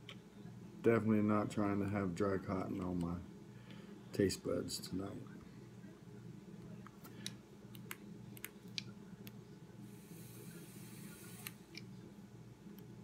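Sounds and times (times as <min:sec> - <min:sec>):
faint sizzling hiss: 0:00.1 - 0:13.0.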